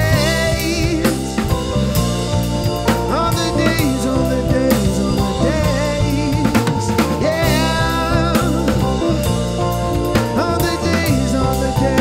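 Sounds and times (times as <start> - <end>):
drum kit beat: 0.0 - 12.0
live band playing: 0.0 - 12.0
wavering lead melody: 0.0 - 12.0.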